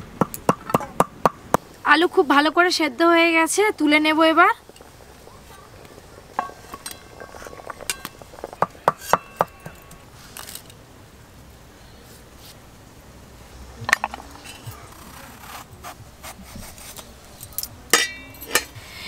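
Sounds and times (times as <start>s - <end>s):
ladle clinking in metal pot: 17.5s - 18.8s.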